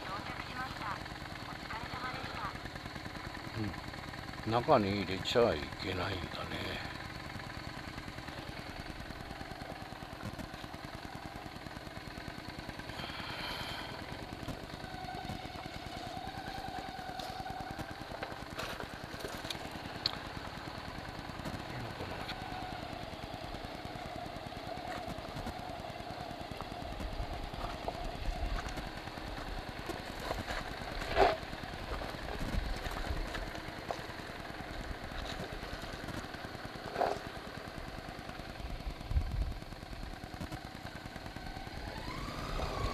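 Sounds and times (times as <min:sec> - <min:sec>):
motorcycle engine running: 0:00.0 - 0:42.9
tyres rolling over gravel: 0:12.9 - 0:38.4.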